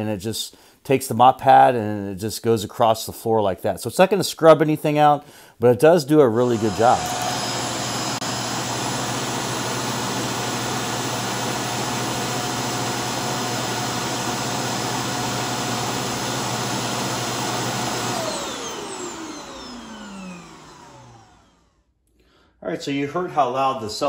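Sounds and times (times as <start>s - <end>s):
suction motor running: 6.3s - 21.7s
motor spinning down whine: 6.4s - 21.8s.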